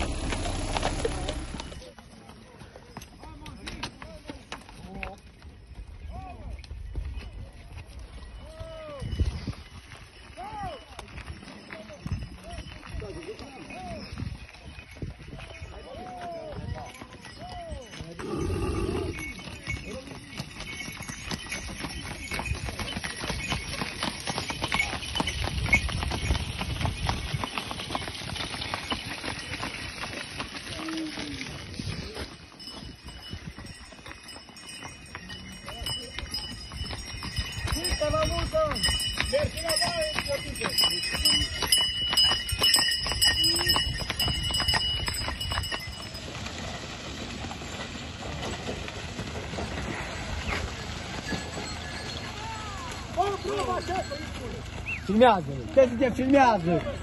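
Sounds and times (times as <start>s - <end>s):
cart rolling rumble: 0.0s - 2.0s, 33.8s - 57.0s
cart rumbling: 0.0s - 8.6s, 9.2s - 57.0s
cart and harness chains clattering: 0.0s - 57.0s
horse hooves clopping on dirt: 0.0s - 57.0s
high steady ringing: 16.8s - 30.2s, 32.5s - 46.4s.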